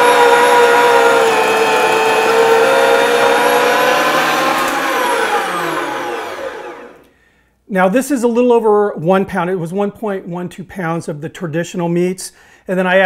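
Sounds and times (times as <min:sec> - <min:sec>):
meat grinder motor whining: 0:00.0 - 0:07.1.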